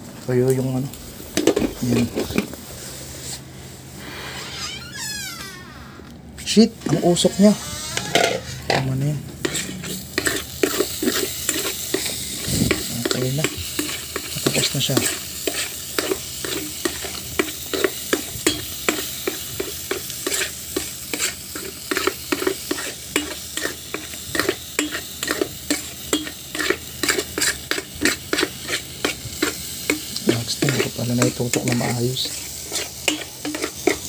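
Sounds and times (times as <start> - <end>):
oil sizzling: 0.0 - 5.6, 7.0 - 34.0
spoon scraping a frying pan: 8.0 - 34.0.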